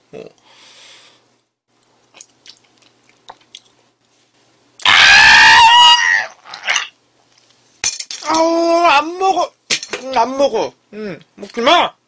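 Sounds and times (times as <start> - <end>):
wet chewing clicks: 1.8 - 3.8
man screaming: 4.8 - 6.9.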